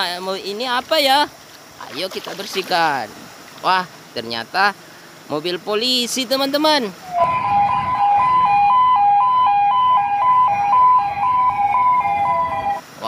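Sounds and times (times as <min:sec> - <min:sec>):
two-tone police siren: 0:07.0 - 0:12.8.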